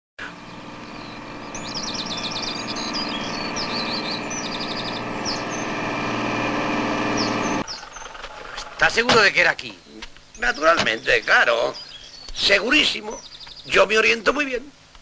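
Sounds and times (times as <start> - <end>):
lorry engine running: 0.2 - 11.1
birds chirping: 0.2 - 14.9.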